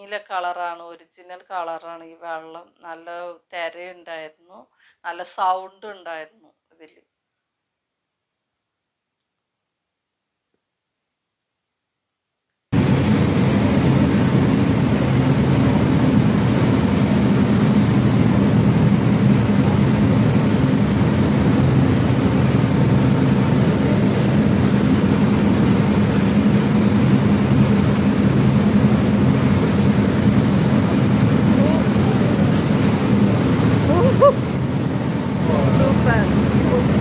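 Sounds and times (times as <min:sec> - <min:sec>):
boat engine drone: 0:12.8 - 0:37.0
water churning in wake: 0:12.8 - 0:37.0.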